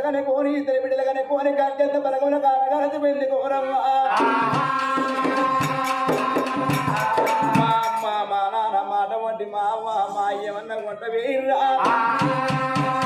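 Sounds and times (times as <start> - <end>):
man singing: 0.0 - 13.0
drum beaten quickly: 4.1 - 8.1, 11.8 - 13.0.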